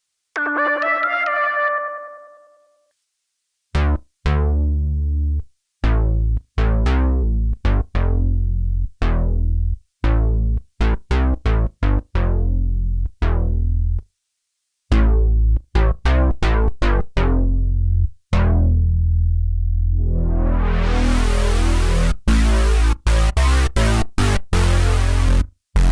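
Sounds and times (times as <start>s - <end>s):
synthesizer bass notes: 14.9s - 25.9s.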